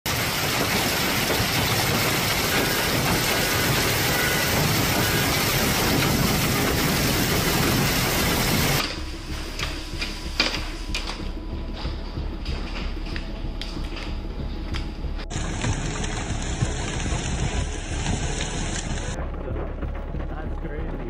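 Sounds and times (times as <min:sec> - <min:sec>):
hail and rain pelting cars: 0:00.0 - 0:09.0, 0:15.3 - 0:21.0
gutter overflowing with water: 0:00.0 - 0:09.2, 0:15.3 - 0:20.6.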